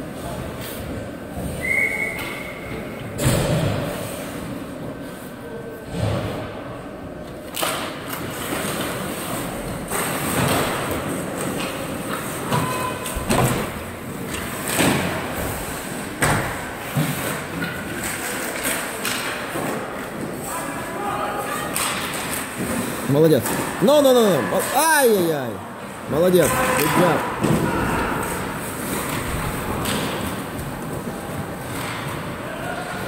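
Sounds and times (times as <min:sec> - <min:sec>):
skates scraping on ice: 0:26.4 - 0:33.0.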